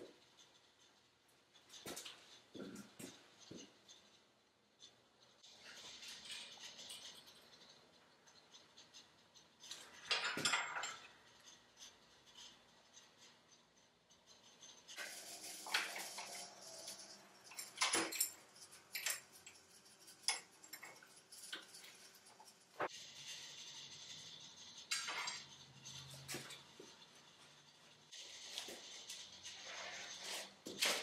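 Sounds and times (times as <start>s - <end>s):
metal tools clinking: 9.6s - 11.4s, 14.9s - 22.9s, 24.8s - 31.0s.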